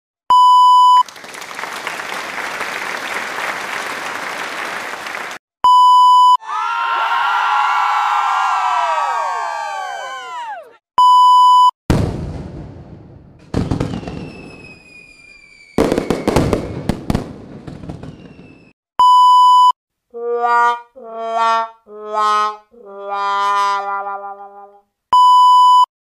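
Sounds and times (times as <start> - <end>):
loud steady beep: 0.3 - 1.0, 5.6 - 6.4, 11.0 - 11.7, 19.0 - 19.8, 25.2 - 25.9
explosion blasts: 11.9 - 14.9, 15.8 - 18.7.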